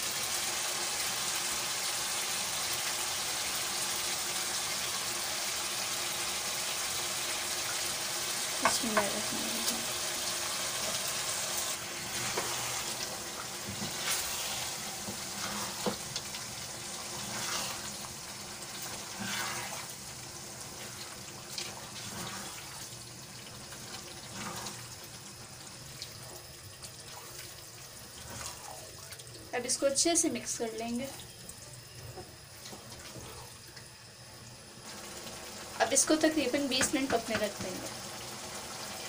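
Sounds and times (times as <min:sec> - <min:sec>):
curry bubbling in a wok: 0:09.9 - 0:29.5
spatula scraping the pan: 0:12.0 - 0:12.9, 0:13.7 - 0:16.1, 0:17.0 - 0:18.1, 0:18.8 - 0:20.0, 0:22.0 - 0:22.8, 0:24.3 - 0:24.9.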